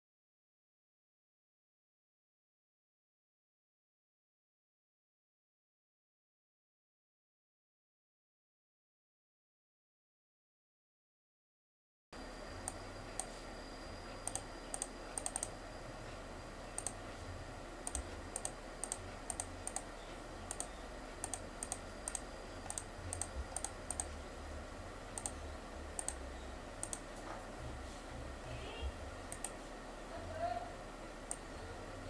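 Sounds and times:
faint steady hum: 0:12.2 - 0:32.0
mouse button clicking: 0:14.2 - 0:15.5, 0:16.8 - 0:17.0, 0:20.5 - 0:24.1, 0:25.1 - 0:25.4, 0:26.0 - 0:26.2, 0:26.8 - 0:27.1, 0:29.3 - 0:29.6.

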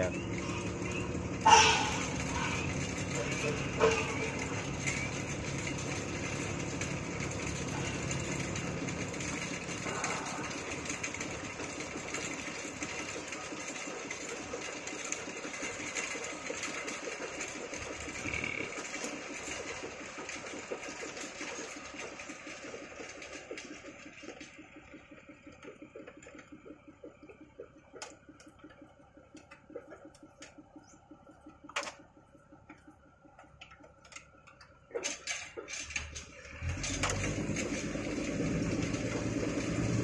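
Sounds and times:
small engine clattering: 0:00.0 - 0:40.0.

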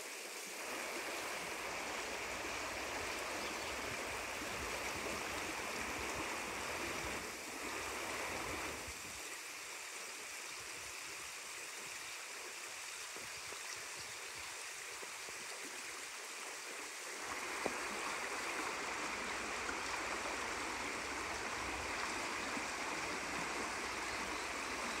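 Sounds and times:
stream babbling over stones: 0:00.0 - 0:25.0.

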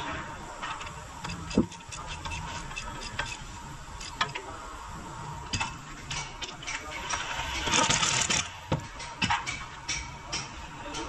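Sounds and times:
loud noisy burst: 0:06.6 - 0:09.0.

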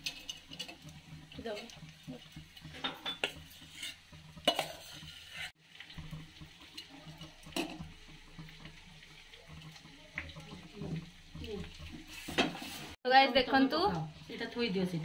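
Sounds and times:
metal spatula scraping a pot: 0:00.0 - 0:05.6, 0:11.5 - 0:13.0.

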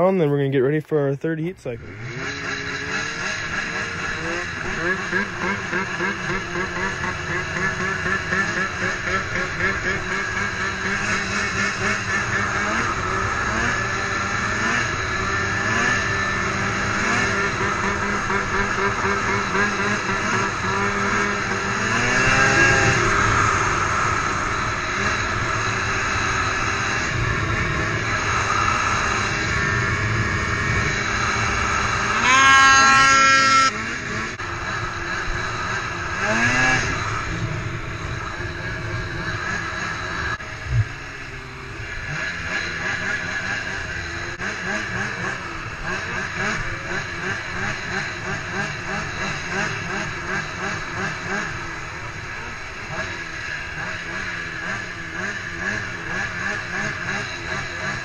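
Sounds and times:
snowmobile engine revving: 0:00.0 - 0:58.0.

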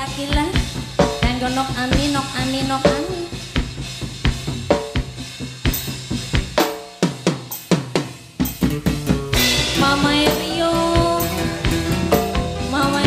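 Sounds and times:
drum hits sliding down in pitch: 0:08.6 - 0:13.0.

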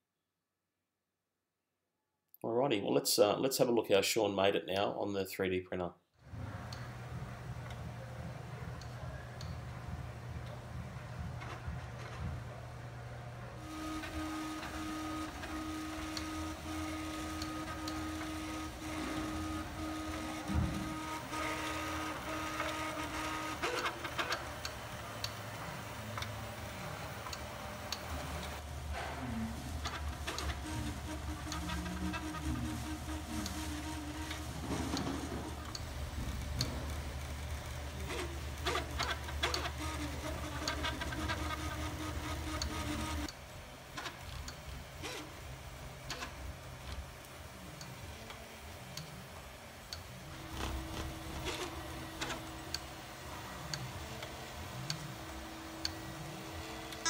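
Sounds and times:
stepper motors whining: 0:13.6 - 0:43.3
printer clicks and ticks: 0:13.8 - 0:25.4, 0:29.8 - 0:35.9, 0:38.1 - 0:43.4.

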